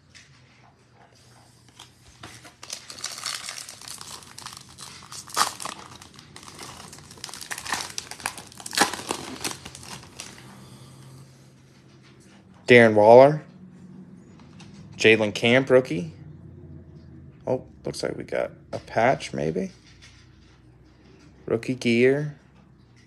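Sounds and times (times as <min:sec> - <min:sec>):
foil wrapper crinkling and tearing: 0:01.8 - 0:10.4.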